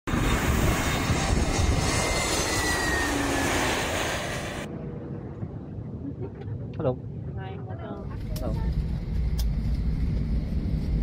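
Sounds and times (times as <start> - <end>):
jet engines roaring: 0.1 - 7.4.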